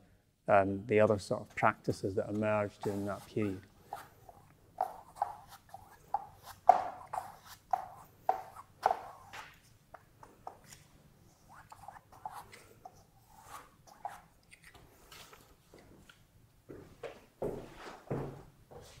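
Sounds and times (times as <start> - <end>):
paintbrush tapping on canvas: 4.8 - 9.5.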